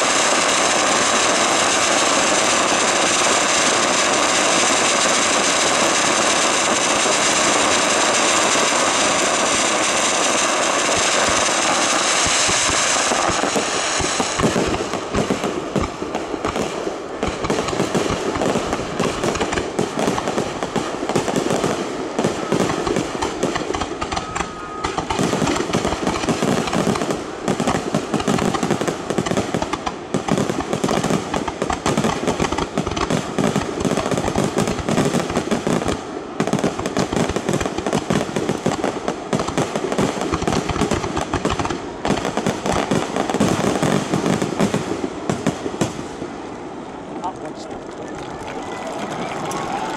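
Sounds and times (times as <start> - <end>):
fireworks booming and crackling: 0.0 - 49.9.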